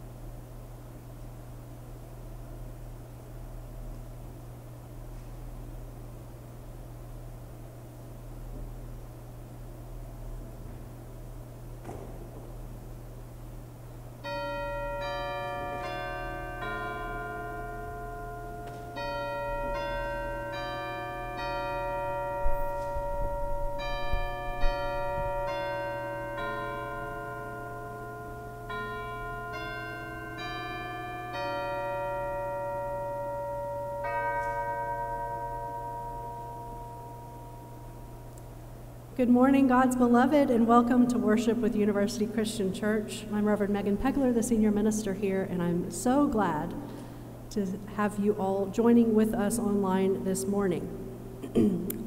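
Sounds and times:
chimes ringing a slow tune: 14.2 - 38.2.

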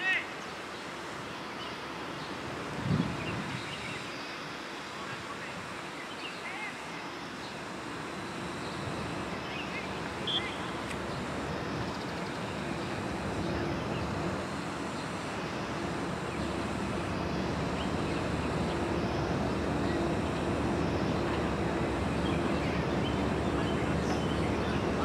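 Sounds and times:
distant engine noise: 0.0 - 25.0
faint low hum: 6.5 - 25.0.

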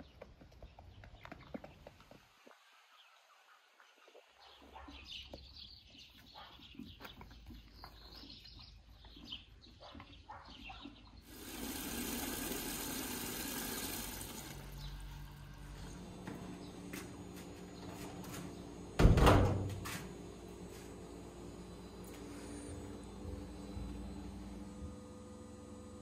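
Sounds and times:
birds chirping: 0.0 - 11.5, 13.8 - 19.0
water from tap pouring into bucket: 11.3 - 15.0.

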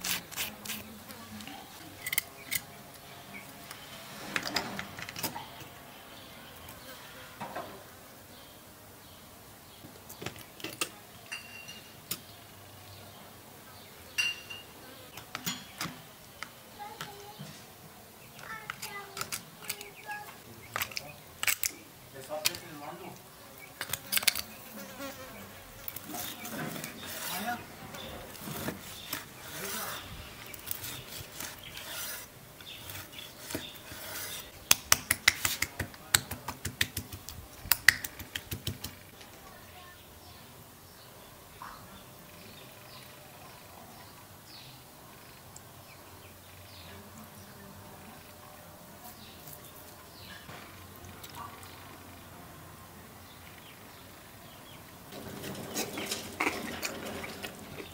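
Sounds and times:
knife scraping bone: 0.0 - 0.9, 25.9 - 27.5, 28.3 - 35.7.

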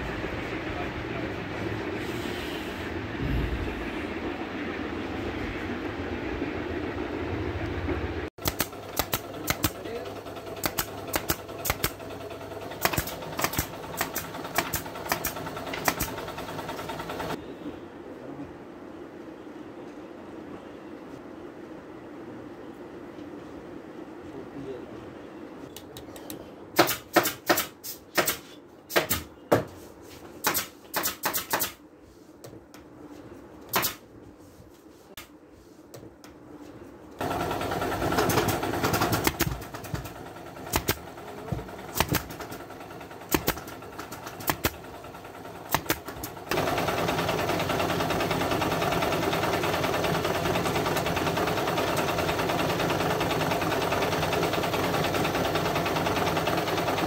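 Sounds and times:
staple gun firing: 8.4 - 9.8, 10.6 - 12.0, 42.0 - 42.3.

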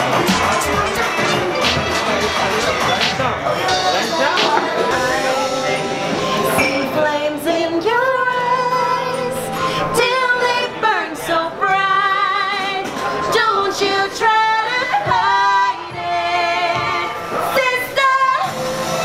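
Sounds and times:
woman singing: 6.2 - 18.7.

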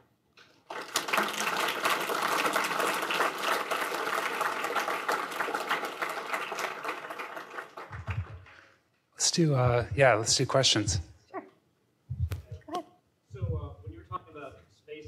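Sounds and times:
audience clapping: 0.0 - 8.9.

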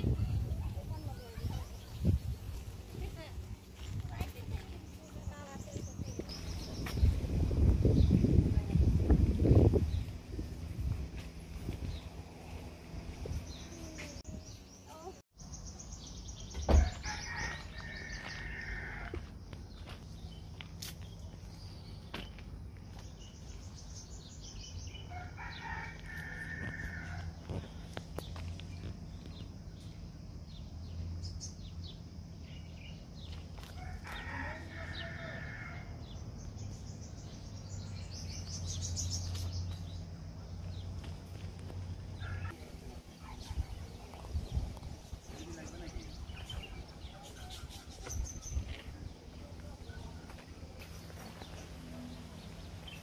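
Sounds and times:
rooster crowing: 16.8 - 19.3, 25.1 - 27.4, 33.8 - 36.2.

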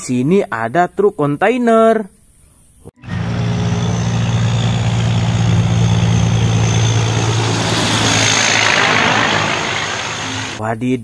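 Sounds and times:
truck diesel engine droning: 3.0 - 10.6.

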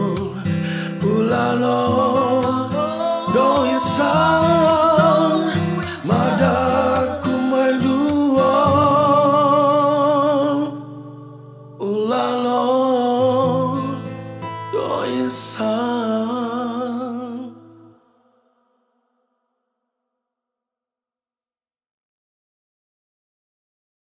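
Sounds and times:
man singing: 0.0 - 11.0, 11.8 - 14.1, 14.7 - 18.0.

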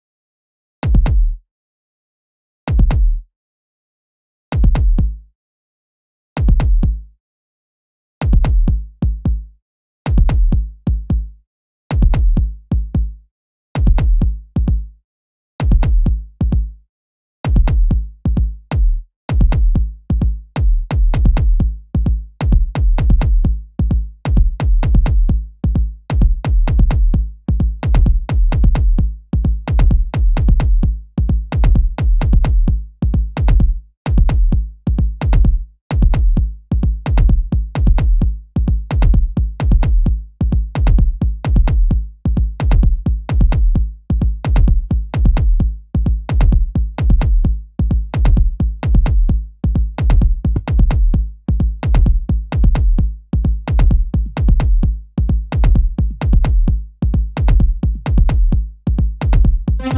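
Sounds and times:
drum machine beat: 4.6 - 5.1, 6.5 - 7.0, 8.3 - 9.4, 10.1 - 11.2, 12.0 - 13.1, 15.6 - 16.7, 19.3 - 58.6, 59.2 - 59.9.

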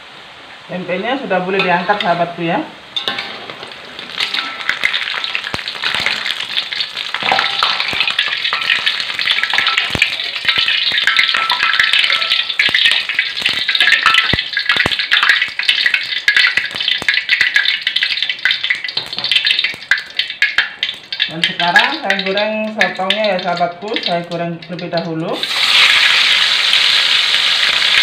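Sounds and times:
oil sizzling in a wok: 0.0 - 28.0
metal utensils scraping wok: 1.5 - 17.0.

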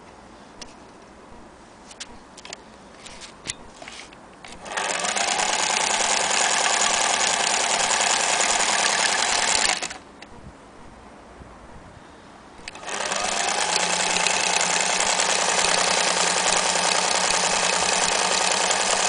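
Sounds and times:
sewing machine clicks: 4.5 - 10.0, 12.6 - 19.0
sewing machine stitching: 4.6 - 10.0, 12.7 - 19.0.

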